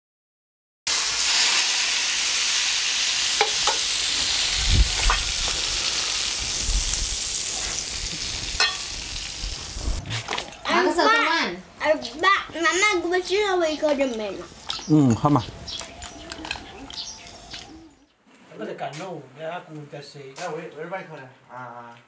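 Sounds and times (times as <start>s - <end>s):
hot oil sizzling: 0.9s - 10.0s.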